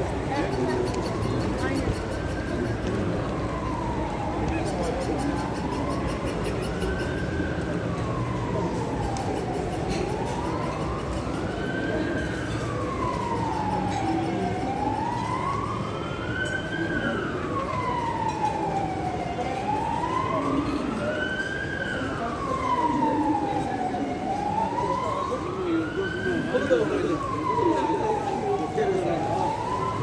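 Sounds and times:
emergency siren wailing: 0.0 - 30.0
street noise: 0.0 - 30.0.

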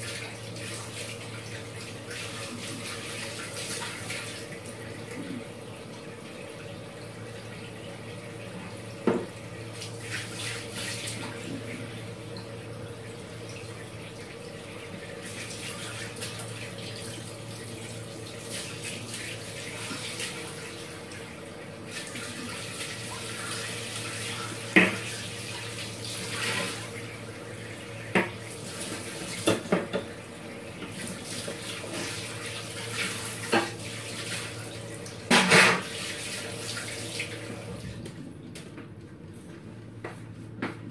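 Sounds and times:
tap water running into sink: 0.0 - 38.2.

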